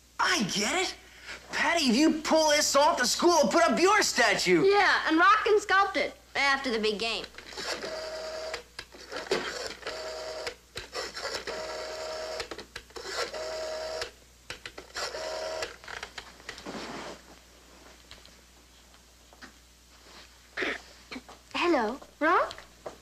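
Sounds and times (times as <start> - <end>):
rotary telephone dial whirring: 7.3 - 16.2.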